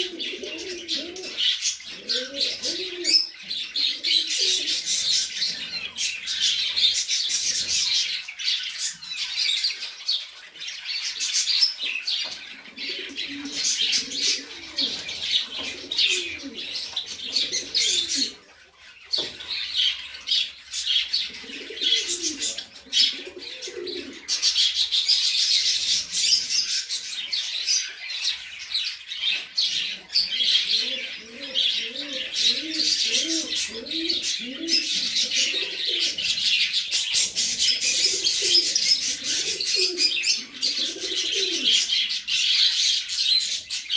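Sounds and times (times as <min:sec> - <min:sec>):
pigeons cooing: 0:00.0 - 0:43.9
small birds chirping: 0:00.0 - 0:43.9.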